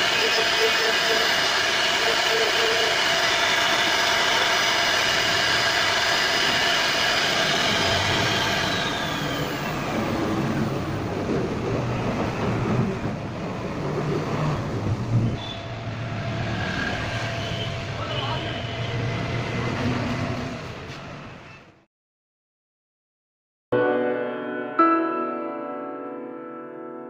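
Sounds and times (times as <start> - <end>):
bit cutting wood: 0.0 - 9.7
router spindle whine: 0.0 - 10.7, 15.4 - 19.6
rough low machine noise: 0.0 - 11.1.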